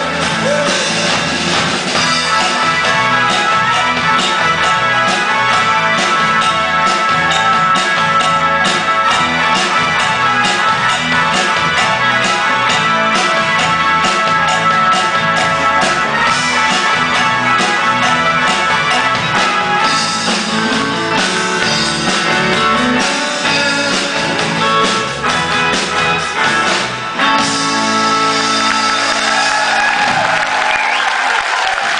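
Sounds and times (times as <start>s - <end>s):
person singing: 0.0s - 1.3s
live rock band playing: 0.0s - 31.5s.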